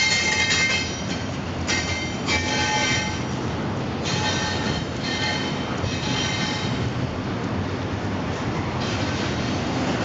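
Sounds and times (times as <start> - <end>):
train wheels squealing: 0.0 - 3.4, 4.0 - 6.9
freight train rumbling past: 0.0 - 10.0.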